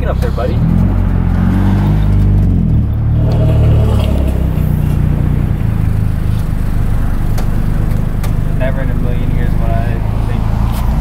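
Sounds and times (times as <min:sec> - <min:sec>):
car engine exhaust note: 0:00.0 - 0:10.4.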